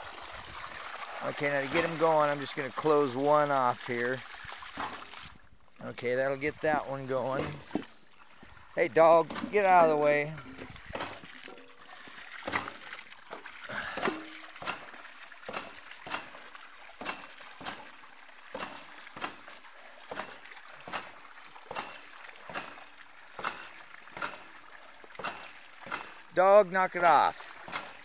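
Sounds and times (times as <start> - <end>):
water spurting and splashing: 0.0 - 28.0
pump valves clacking shut: 7.2 - 7.9, 9.0 - 24.6, 25.2 - 26.4, 27.0 - 28.0.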